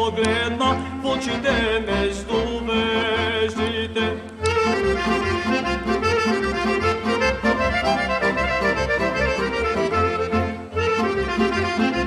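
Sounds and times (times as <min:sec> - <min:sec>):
accordion playing quick melody: 0:00.6 - 0:12.0.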